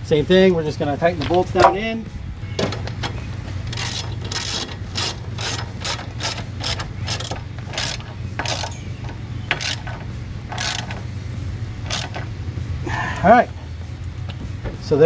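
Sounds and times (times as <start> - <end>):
socket ratchet clicking: 2.6 - 11.1, 11.8 - 12.4.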